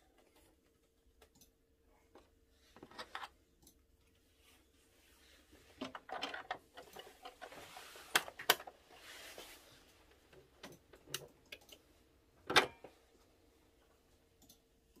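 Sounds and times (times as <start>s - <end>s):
soft rustle: 4.1s - 5.8s, 6.9s - 10.2s.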